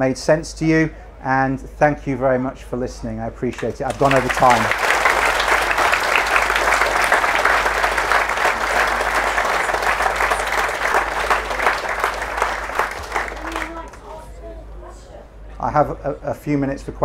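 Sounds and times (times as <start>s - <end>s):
audience applauding: 3.6s - 14.2s.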